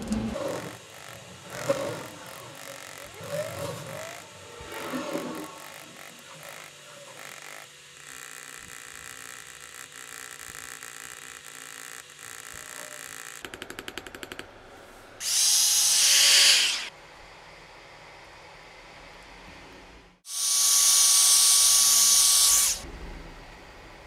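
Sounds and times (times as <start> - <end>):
engraving tool working metal: 0.0 - 13.5, 15.2 - 16.9, 20.3 - 22.8
loud hiss: 15.2 - 16.9, 20.3 - 22.8.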